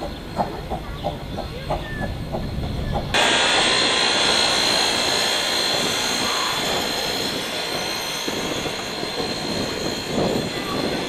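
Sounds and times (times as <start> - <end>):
steam locomotive chuffing: 2.8 - 11.0
steam hissing: 3.1 - 11.0.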